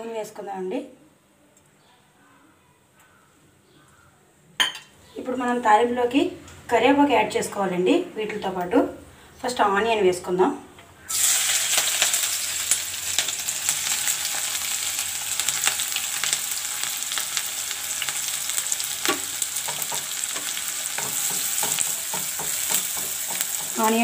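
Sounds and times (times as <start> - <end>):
hot oil sizzling and crackling: 11.1 - 24.0.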